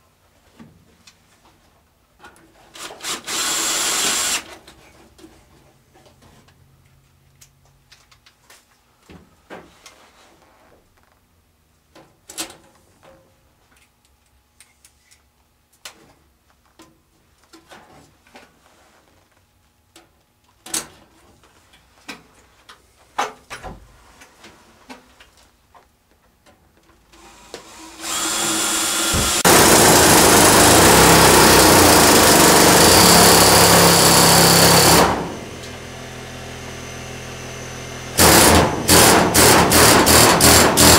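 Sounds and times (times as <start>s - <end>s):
power tool running: 2.8s - 4.5s, 27.2s - 40.9s.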